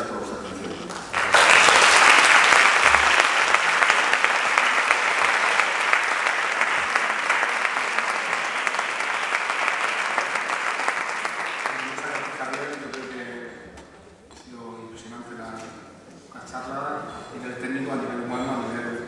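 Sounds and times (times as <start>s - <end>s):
audience applauding: 0.9s - 13.2s.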